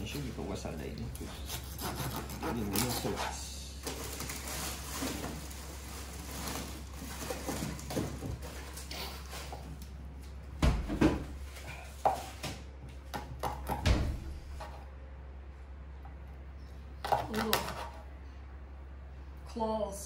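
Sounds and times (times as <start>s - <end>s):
knife chopping on cutting board: 13.1s - 14.0s.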